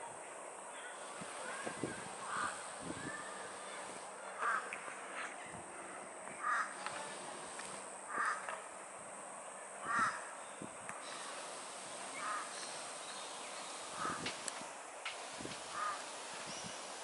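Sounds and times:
bird giving short calls: 0:01.0 - 0:04.7, 0:09.8 - 0:10.3, 0:12.1 - 0:12.8, 0:13.8 - 0:14.2, 0:15.7 - 0:16.7.

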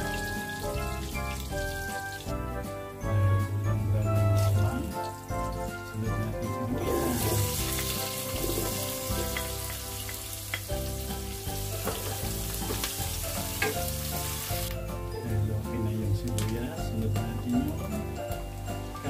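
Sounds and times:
garlic and onion sizzling in oil: 0:00.0 - 0:02.6, 0:04.2 - 0:15.2
spatula tapping pan: 0:07.7 - 0:14.1.

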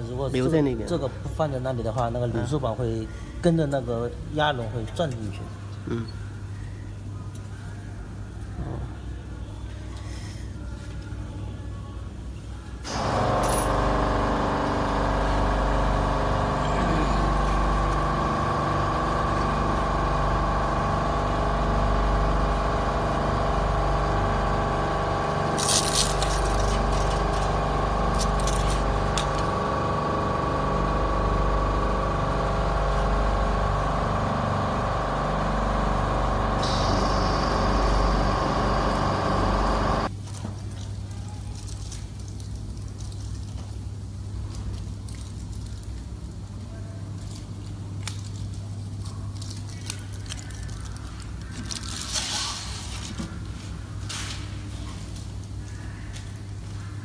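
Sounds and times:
machine motor hum and whine: 0:12.8 - 0:40.1.

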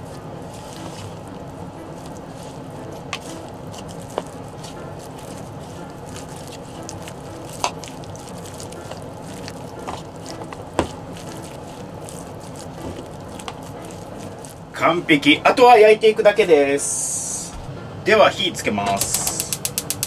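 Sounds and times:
hand squishing sticky mix: 0:00.0 - 0:17.6
sharp clicks: 0:19.0 - 0:20.0.

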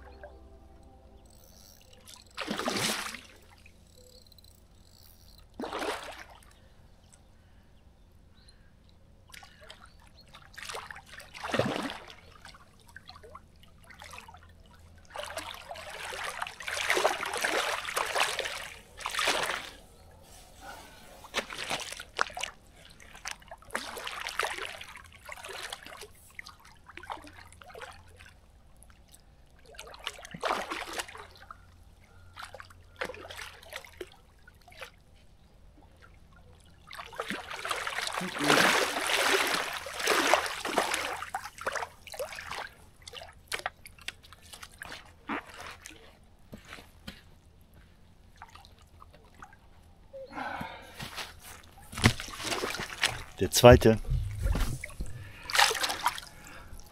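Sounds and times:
water splashing from thrashing fish: 0:02.4 - 0:03.5, 0:15.1 - 0:19.7, 0:29.6 - 0:31.4, 0:36.9 - 0:45.9, 0:52.0 - 0:53.4, 0:54.4 - 0:56.8.

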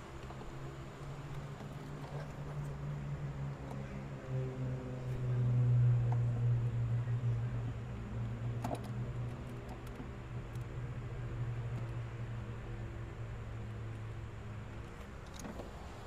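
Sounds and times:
low mechanical hum: 0:00.0 - 0:16.0
small clicks from engine parts: 0:08.6 - 0:10.7.

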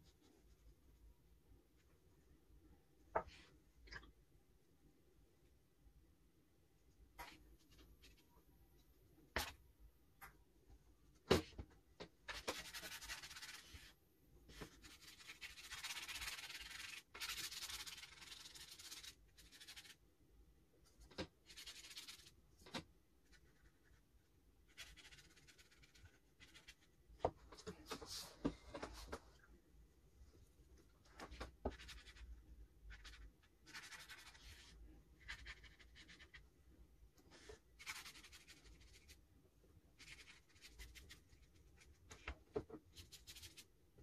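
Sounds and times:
paintbrush scratching: 0:12.3 - 0:20.0, 0:21.4 - 0:22.4, 0:23.2 - 0:26.9, 0:32.9 - 0:36.4, 0:37.3 - 0:39.2, 0:40.0 - 0:42.0, 0:42.9 - 0:43.7.

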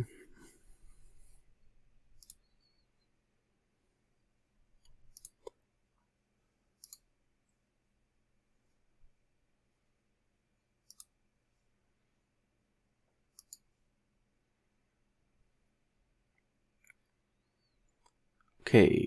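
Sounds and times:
computer mouse clicks: 0:02.2 - 0:02.8, 0:04.8 - 0:05.6, 0:06.8 - 0:07.1, 0:10.8 - 0:11.2, 0:13.3 - 0:13.7.

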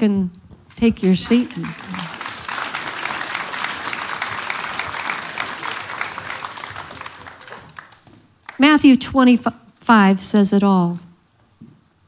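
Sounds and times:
congregation applauding: 0:00.9 - 0:08.6.

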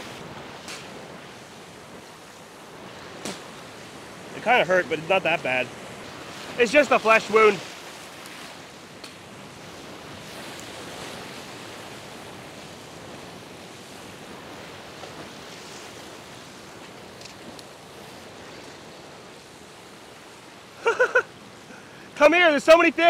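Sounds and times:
ocean surf: 0:00.0 - 0:23.0.

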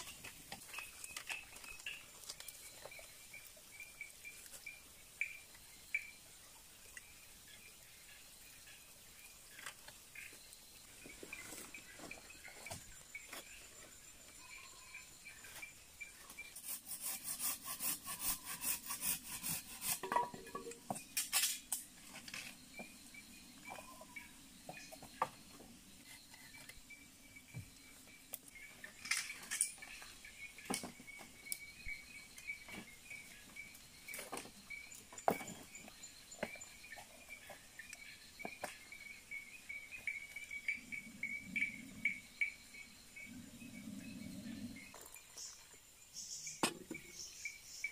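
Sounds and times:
insects chirring: 0:00.0 - 0:47.9
bamboo poles knocking: 0:19.8 - 0:21.3.

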